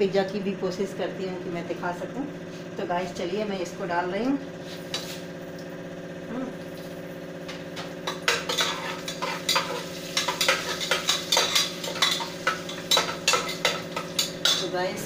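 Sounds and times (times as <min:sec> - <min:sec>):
steady low hum: 0:00.0 - 0:15.0
spices sizzling in oil: 0:04.6 - 0:05.4, 0:06.8 - 0:15.0
metal ladle scraping pot: 0:08.0 - 0:14.7.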